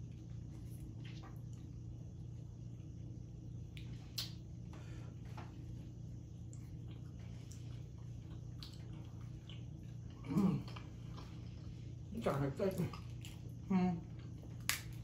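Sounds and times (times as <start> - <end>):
steady low hum: 0.0 - 15.0
wet clicks and snaps: 3.7 - 4.4, 14.6 - 15.0.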